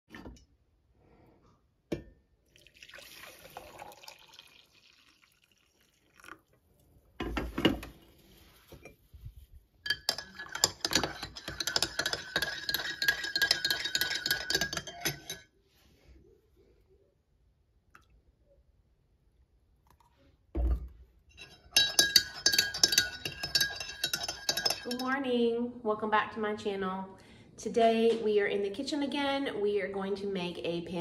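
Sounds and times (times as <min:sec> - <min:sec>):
coffee pouring into a mug: 0:02.5 - 0:06.9
metal spoon stirring in a mug: 0:09.8 - 0:15.5, 0:21.3 - 0:25.2.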